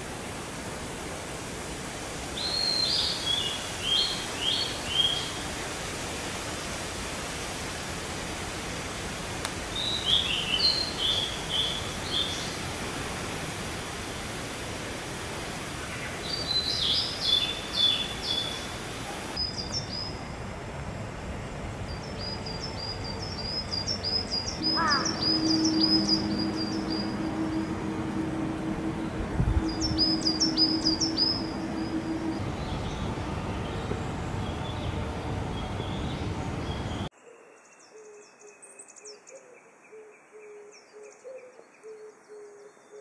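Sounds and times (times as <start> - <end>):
background hiss: 0.0 - 43.0
songbirds singing: 9.7 - 12.8, 15.8 - 20.3, 21.9 - 43.0
low steady hum: 20.1 - 37.1
bird chirping high: 22.1 - 37.1.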